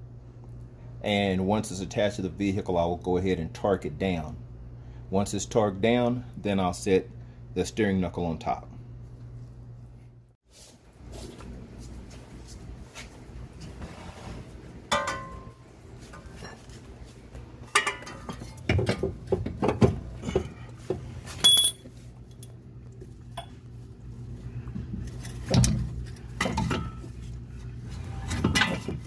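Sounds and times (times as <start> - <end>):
short metallic ring: 21.4 - 21.9
metal clinks and knocks: 21.4 - 22.6.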